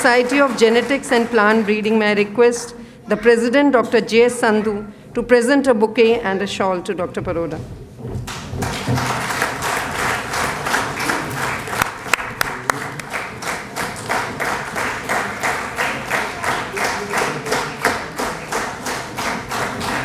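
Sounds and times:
audience applauding: 0.0 - 2.0, 8.3 - 20.0.

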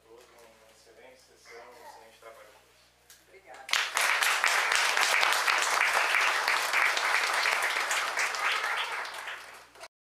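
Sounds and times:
crowd applauding: 3.7 - 9.9.

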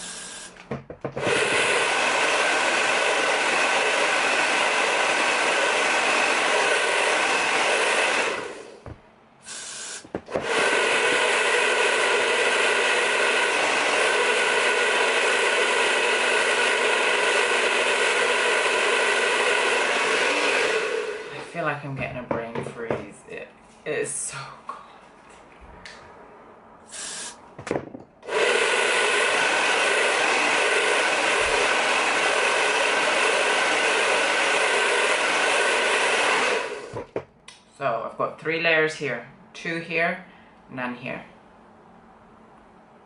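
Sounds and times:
aerosol spray hisses: 0.0 - 0.6, 9.4 - 21.2, 26.9 - 27.4
hair dryer blowing: 0.0 - 22.0, 26.9 - 37.2.

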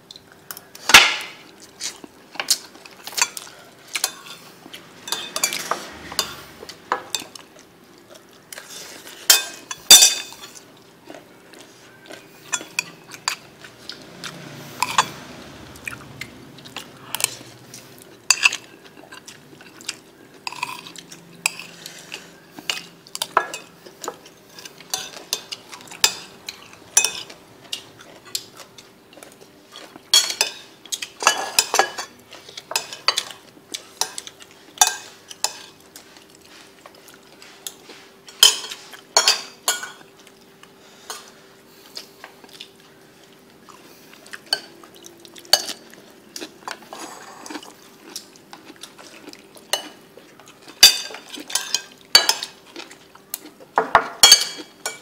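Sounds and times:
utensils clinking on ceramic bowls: 5.0 - 7.4, 8.6 - 10.6, 12.1 - 15.4, 20.4 - 28.9, 29.7 - 33.4, 37.7 - 40.0, 46.6 - 50.0, 50.6 - 52.9, 53.8 - 55.0.

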